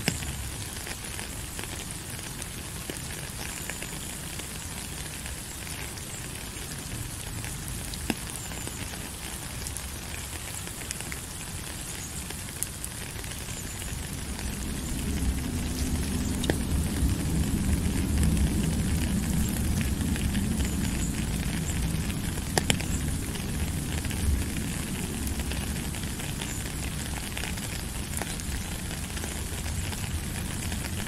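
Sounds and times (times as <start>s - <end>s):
raindrops crackling: 0.0s - 31.0s
steady rain falling: 0.0s - 31.0s
low rumble: 14.0s - 26.0s.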